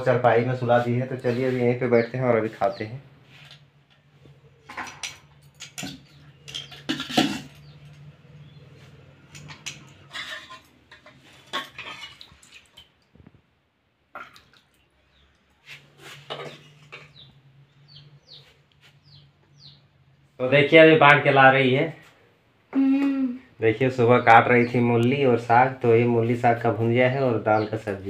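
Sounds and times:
metal spoons scraping pots: 4.6s - 8.6s, 9.3s - 12.6s, 16.0s - 17.3s.

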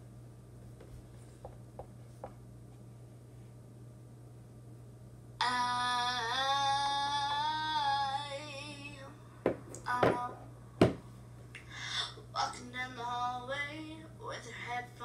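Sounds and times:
girl singing: 5.4s - 9.2s, 9.8s - 10.6s, 12.3s - 15.0s.

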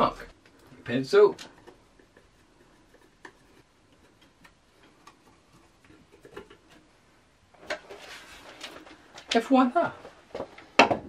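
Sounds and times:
pencil ticking and tapping on wall: 0.4s - 7.0s.

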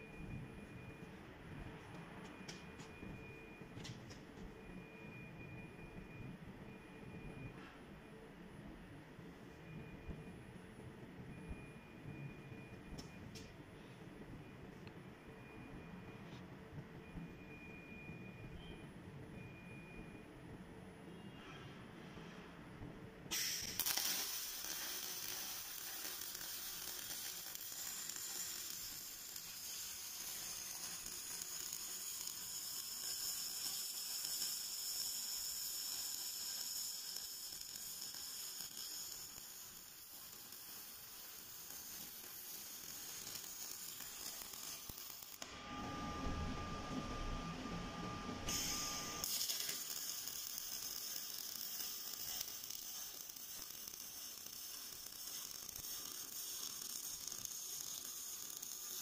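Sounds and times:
low rumble with faint tone: 0.0s - 21.1s, 45.4s - 49.2s
welding arc sizzling: 23.3s - 46.6s, 48.4s - 59.0s.

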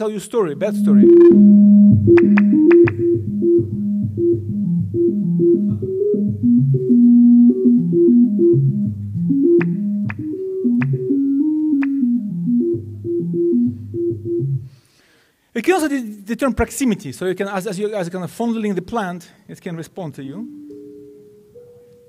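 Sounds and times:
synthesized organ-like notes: 0.0s - 14.8s, 20.3s - 22.0s.

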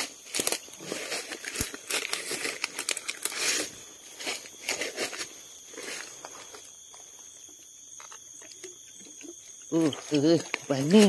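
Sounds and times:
leaves and stems rustling underfoot: 0.0s - 11.0s.

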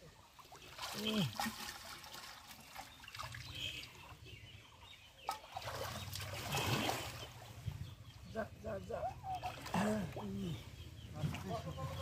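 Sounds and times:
water sloshing and splashing: 0.0s - 8.2s, 9.0s - 12.0s
sharp splashes: 0.3s - 4.1s, 5.2s - 7.6s.

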